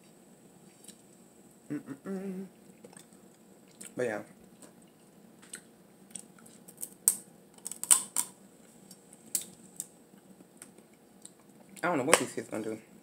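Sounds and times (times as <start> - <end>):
crab shell cracking: 6.2 - 8.4.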